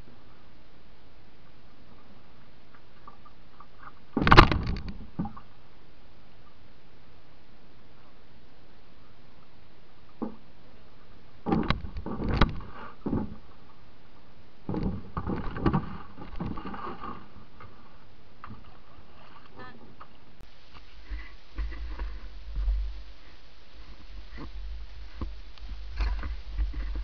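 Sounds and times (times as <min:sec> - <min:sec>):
paddle strokes splashing: 0:11.4 - 0:27.0
low rumble: 0:20.3 - 0:27.0.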